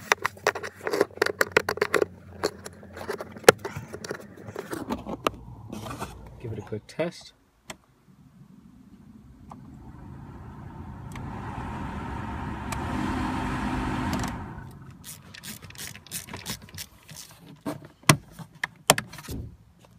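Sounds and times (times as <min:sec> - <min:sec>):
heater blower fan rushing air: 0:09.0 - 0:15.2.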